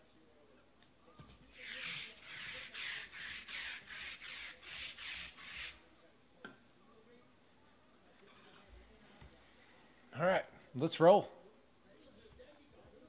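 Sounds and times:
lint roller rasping on cloth: 1.5 - 5.8.

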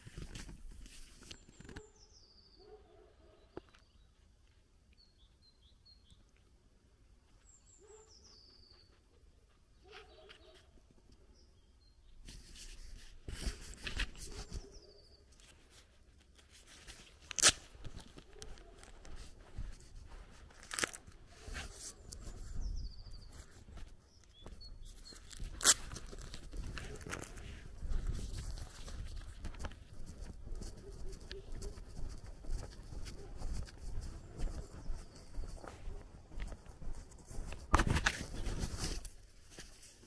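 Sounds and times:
small birds chirping: 0.8 - 16.0, 17.8 - 39.0
footsteps on gravel: 17.6 - 39.1.

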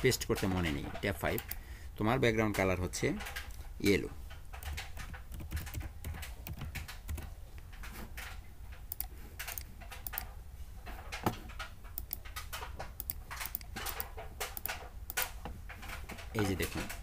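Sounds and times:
typing on computer keyboard: 4.5 - 10.3, 11.1 - 17.0
mouse clicking: 8.9 - 10.3, 12.0 - 15.4.

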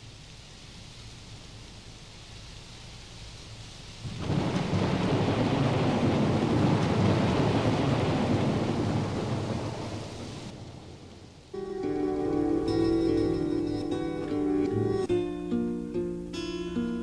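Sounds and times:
rain hiss: 0.0 - 17.0
thunder rumbling: 4.0 - 15.1.

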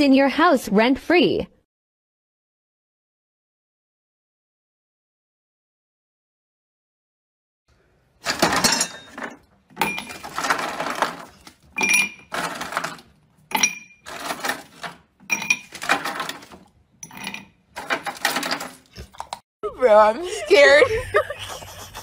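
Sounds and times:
ice cubes rattling in plastic basket: 8.2 - 13.2, 14.1 - 19.4.

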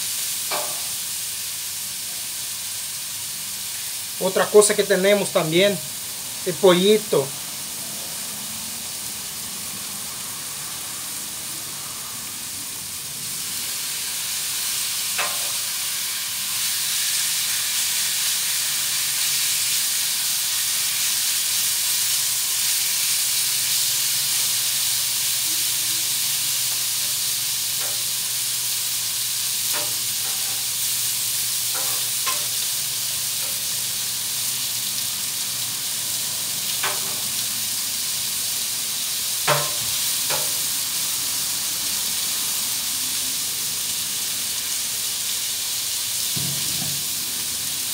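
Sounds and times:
chicken sizzling on a griddle: 0.0 - 47.9
metal spatula scraping griddle: 29.7 - 30.7, 31.7 - 32.6.

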